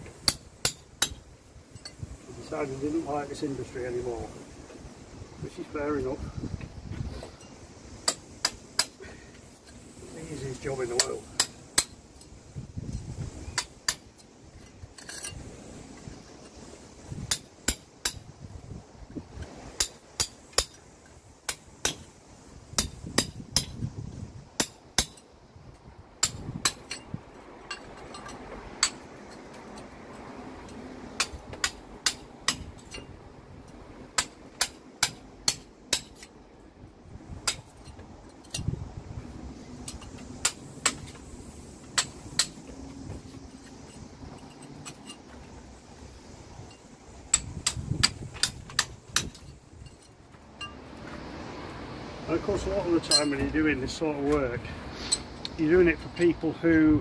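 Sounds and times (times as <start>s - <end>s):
hammer striking metal chisel: 0.2s - 1.2s, 34.2s - 36.3s, 42.0s - 42.6s, 53.0s - 53.5s.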